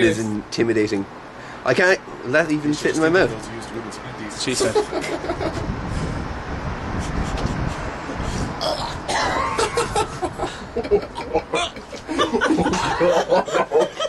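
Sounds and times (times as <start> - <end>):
people laughing: 4.5 - 5.7, 9.4 - 14.0.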